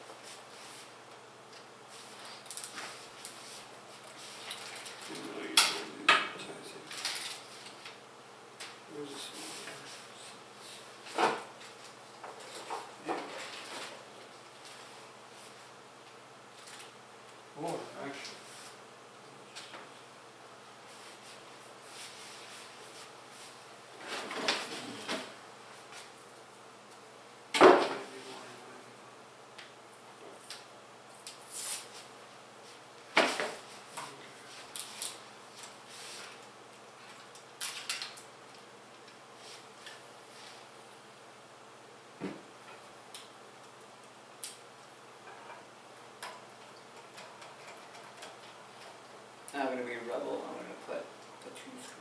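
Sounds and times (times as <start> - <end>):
objects clattering and scraping: 24.0 - 25.4.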